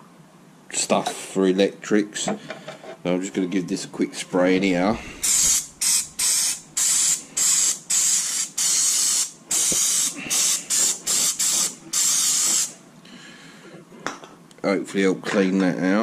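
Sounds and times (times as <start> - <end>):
aerosol spray hissing: 5.2 - 12.8.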